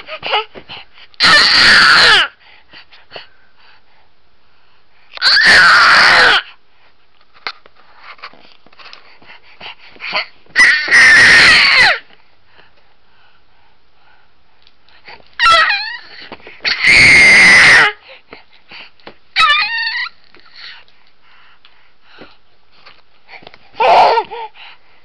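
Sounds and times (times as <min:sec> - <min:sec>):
baby screaming: 0:01.2 - 0:02.3, 0:05.2 - 0:06.4, 0:10.2 - 0:12.0, 0:15.4 - 0:18.0, 0:19.4 - 0:20.2, 0:23.8 - 0:24.5.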